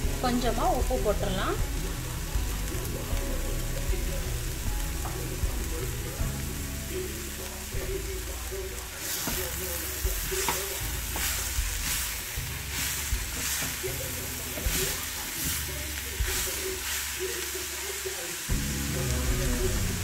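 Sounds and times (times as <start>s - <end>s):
vegetables sizzling in a pot: 0.0s - 20.0s
wooden spatula scraping a pot: 9.0s - 17.2s.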